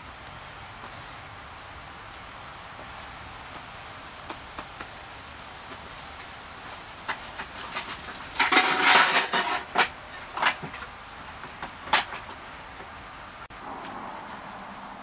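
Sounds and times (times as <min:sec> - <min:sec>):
tools clattering: 0:07.1 - 0:10.8
scraping rattle of tools: 0:07.6 - 0:10.6.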